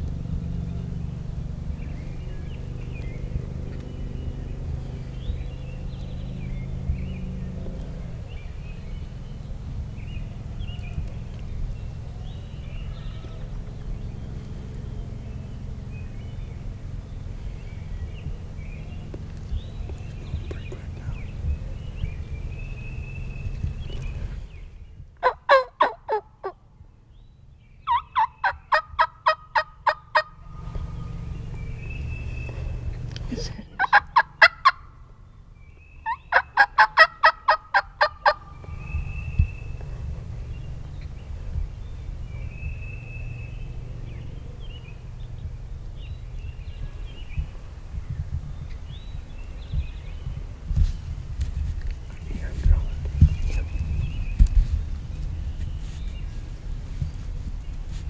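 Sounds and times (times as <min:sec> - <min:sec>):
low steady rumble: 0:00.0 - 0:58.0
small birds chirping: 0:00.0 - 0:58.0
wild turkeys calling: 0:25.2 - 0:26.6, 0:27.9 - 0:34.9, 0:36.0 - 0:38.8.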